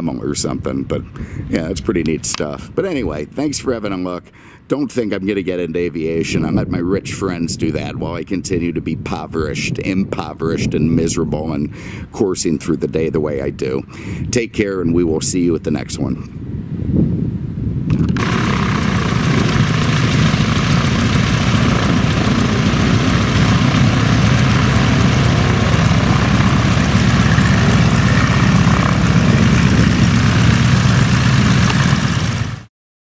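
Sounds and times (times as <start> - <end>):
biplane radial engine running: 17.9 - 32.7.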